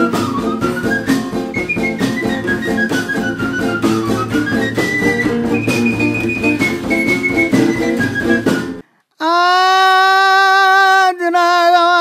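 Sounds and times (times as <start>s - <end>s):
guitar strumming chords: 0.0s - 8.8s
high melody line: 0.0s - 8.8s.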